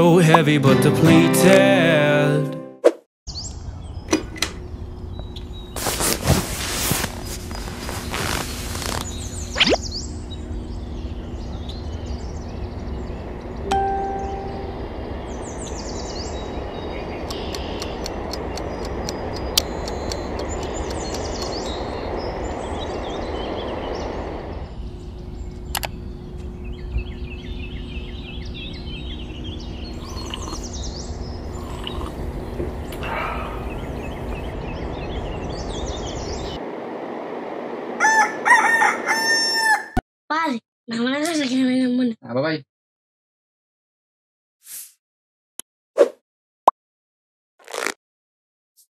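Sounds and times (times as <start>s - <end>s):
birds chirping: 3.3s - 36.6s
low steady hum: 3.6s - 38.0s
steady background rumble: 14.3s - 39.1s
rooster crowing: 38.0s - 40.0s.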